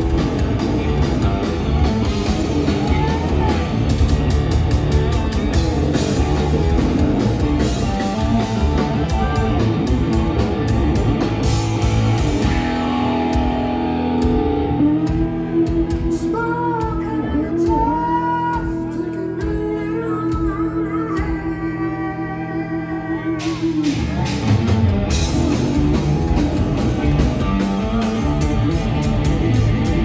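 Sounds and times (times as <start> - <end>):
drums and cymbals: 0.0 - 21.4, 23.4 - 30.0
hard rock band playing: 0.0 - 21.6, 23.1 - 30.0
man singing: 7.8 - 9.9.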